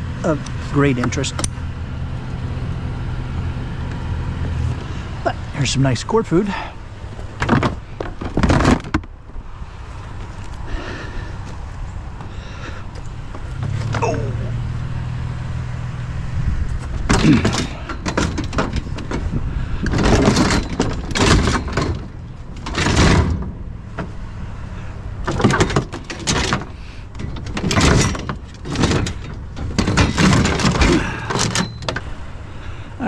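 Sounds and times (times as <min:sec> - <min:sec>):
pressure washer clattering and scraping: 0:16.8 - 0:24.1, 0:25.3 - 0:32.1.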